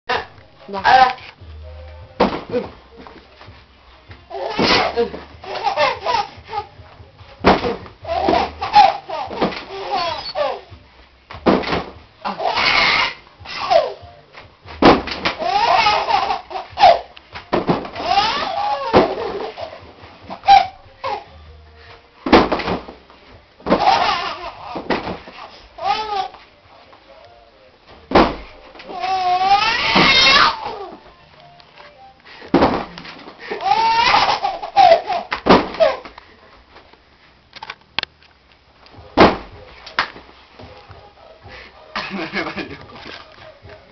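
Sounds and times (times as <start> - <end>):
toddler laughing: 4.3 - 6.7, 8.0 - 10.7, 15.4 - 17.1, 18.0 - 21.3, 23.8 - 24.8, 33.4 - 36.0
toddler squealing laughter: 8.2 - 10.6, 12.4 - 14.0.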